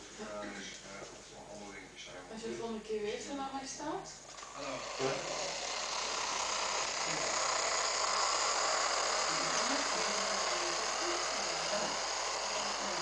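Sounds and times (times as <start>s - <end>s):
model train motor whirring: 4.3s - 13.0s.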